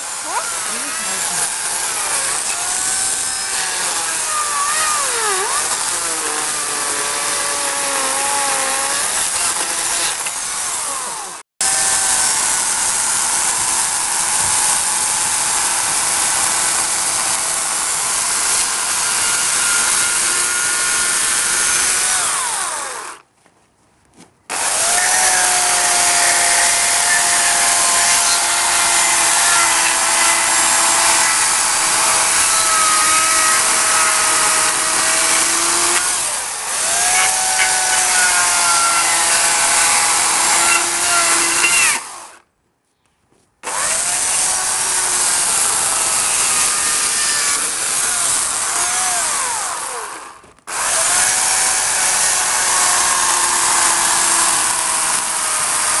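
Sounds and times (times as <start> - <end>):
electric chainsaw cutting wood: 0.0 - 23.2, 24.5 - 42.4, 43.6 - 56.0.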